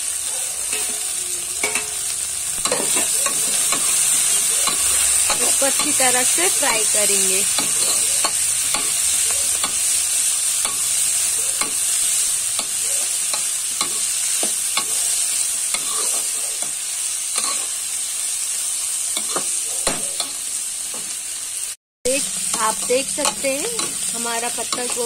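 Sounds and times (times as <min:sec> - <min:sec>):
vegetables sizzling in hot oil: 0:00.0 - 0:25.0
spatula scraping and knocking pan: 0:02.6 - 0:06.6, 0:07.5 - 0:10.0.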